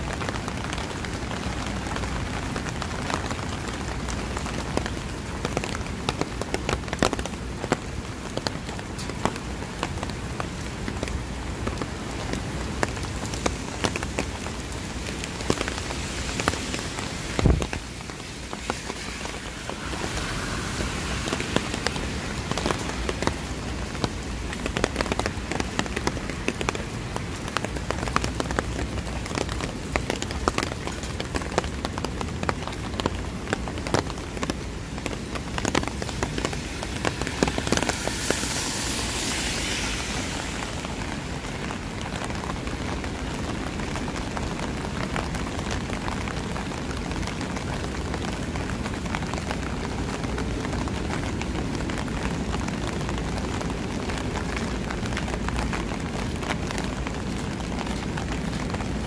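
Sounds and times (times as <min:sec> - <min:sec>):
rain falling: 0:00.0 - 0:59.0
sharp raindrop ticks: 0:00.1 - 0:59.0
hiss: 0:13.2 - 0:28.6, 0:35.0 - 0:42.7.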